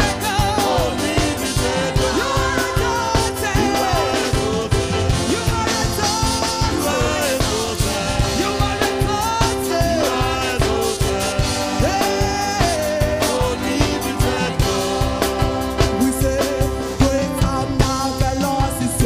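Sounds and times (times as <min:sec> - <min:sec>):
backing singers: 0:00.0 - 0:17.7
band with steady drum beat: 0:00.0 - 0:19.0.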